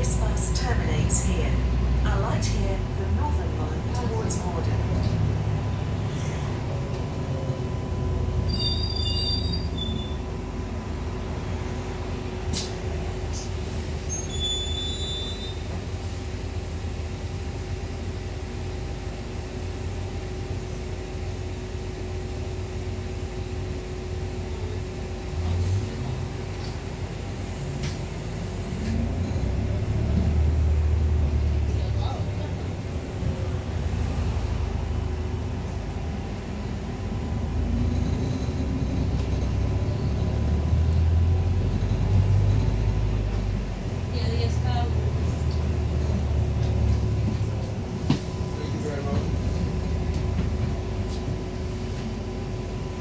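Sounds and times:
bus engine rumbling: 0.0s - 53.0s
high brake squeals: 8.4s - 10.3s, 14.0s - 15.7s.

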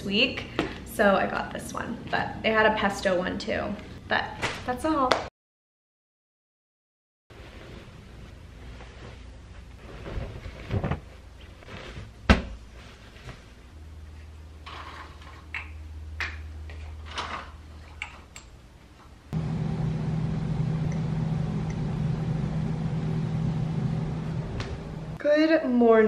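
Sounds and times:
bedding rustling: 7.3s - 13.8s
steady hum: 19.3s - 25.2s.

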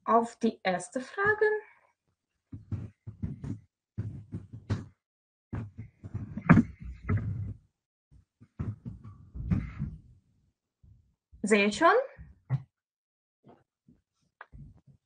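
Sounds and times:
clicks and knocks on desk: 2.5s - 5.0s, 5.6s - 7.6s.

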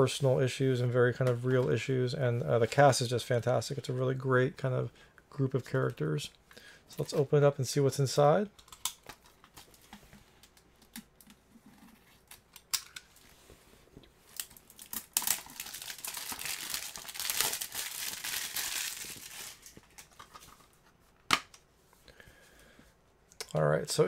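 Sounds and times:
plastic wrap crinkling and tearing: 14.2s - 20.6s.

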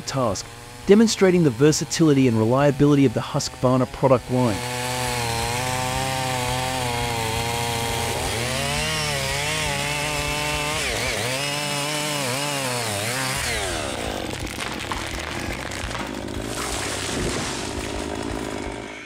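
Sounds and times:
chainsaw cutting wood: 0.0s - 19.0s.

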